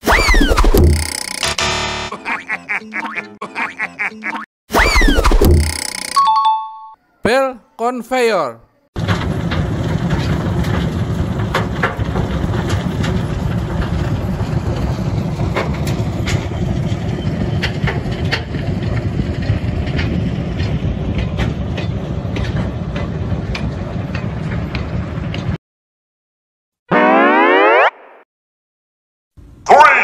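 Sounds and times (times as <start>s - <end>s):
belt conveyor droning: 9.0s - 25.5s.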